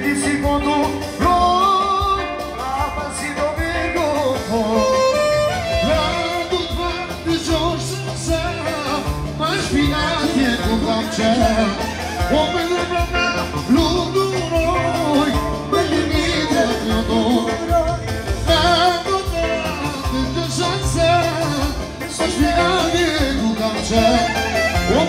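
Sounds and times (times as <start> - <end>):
band playing folk dance music: 0.0 - 25.0
clarinet melody: 4.6 - 7.6, 11.5 - 15.0, 23.9 - 25.0.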